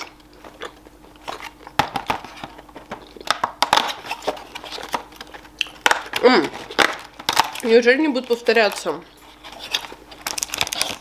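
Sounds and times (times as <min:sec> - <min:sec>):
paper rustling: 0:08.2 - 0:11.0.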